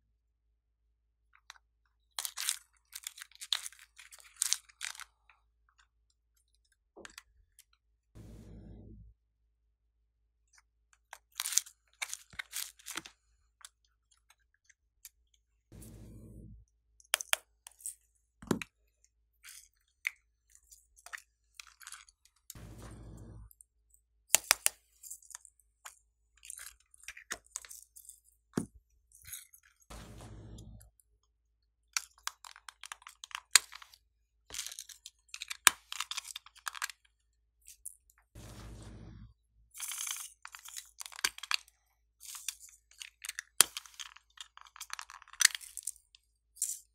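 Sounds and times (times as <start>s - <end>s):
brief low hum: 8.2s - 9.1s, 15.7s - 16.6s, 22.6s - 23.5s, 29.9s - 30.9s, 38.4s - 39.4s
plastic clicks and crackles: 32.0s - 38.3s, 39.8s - 46.9s.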